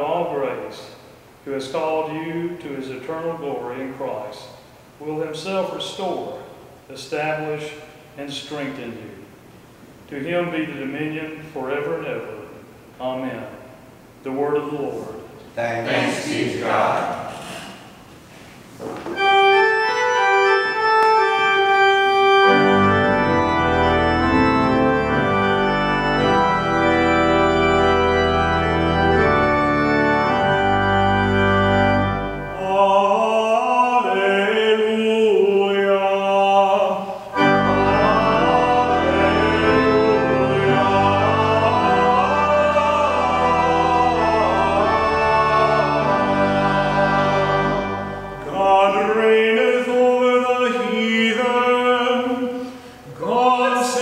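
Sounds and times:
organ playing sustained chords: 19.1 - 54.0
person singing with vibrato: 32.3 - 54.0.

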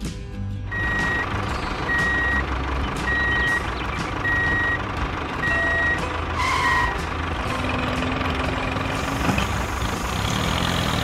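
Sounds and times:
low engine rumble: 0.0 - 11.0
reversing alarm beeping: 0.7 - 7.8.

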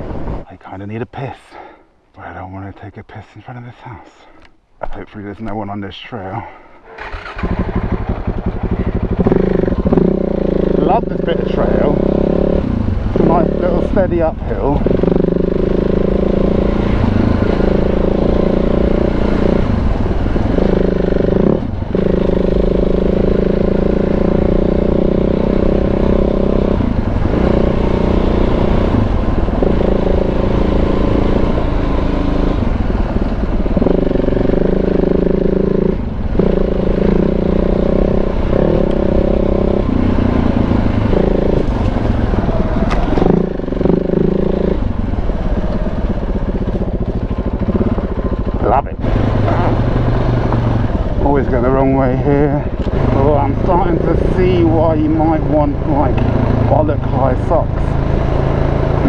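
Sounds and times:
motorcycle engine pulling: 6.9 - 26.7, 33.0 - 59.0.

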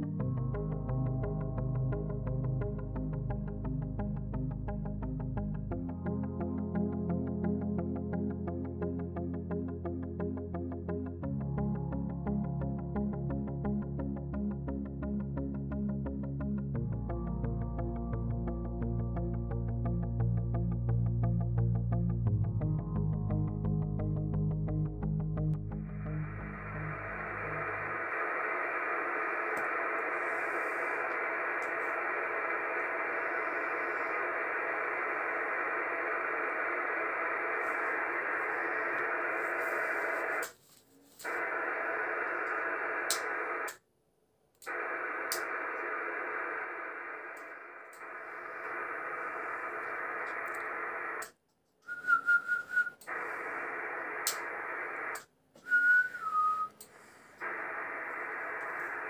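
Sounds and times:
radio static hiss: 25.6 - 43.8, 44.6 - 51.4, 53.0 - 55.3, 56.2 - 59.0
radio bursts with whistle tone: 26.0 - 40.5, 41.3 - 43.8, 44.7 - 51.3, 52.5 - 55.2, 57.4 - 59.0.

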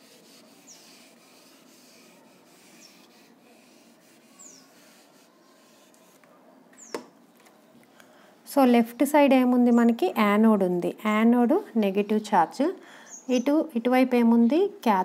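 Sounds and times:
duster rubbing whiteboard: 0.0 - 6.2.

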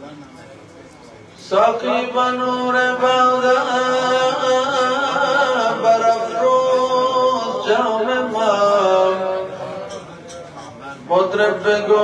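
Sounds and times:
man singing: 1.4 - 9.5, 11.1 - 12.0.

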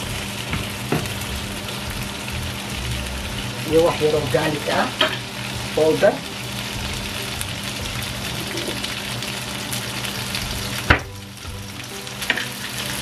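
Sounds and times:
low hum: 0.0 - 4.4
green beans sizzling in a pan: 0.0 - 13.0.

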